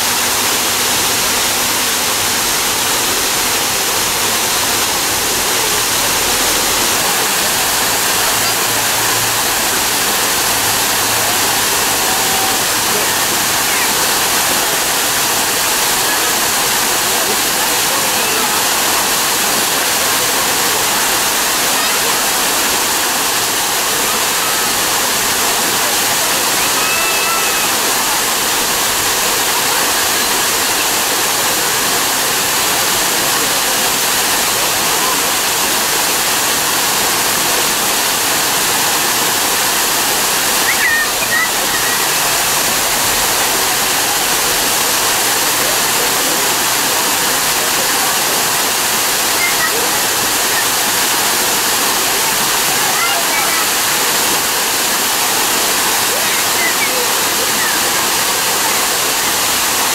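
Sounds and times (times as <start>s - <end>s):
waterfall rushing and splashing: 0.0s - 59.9s.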